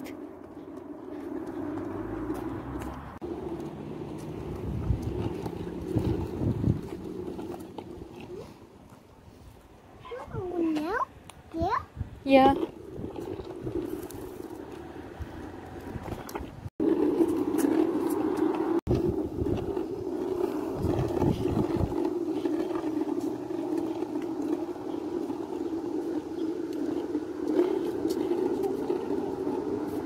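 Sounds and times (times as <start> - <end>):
scooter wheels rolling on asphalt: 0.0 - 30.0.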